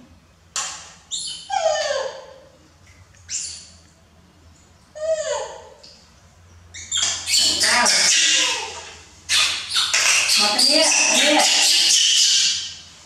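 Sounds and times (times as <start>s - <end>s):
baby monkey coo calls: 5.0s - 5.8s, 6.8s - 12.7s.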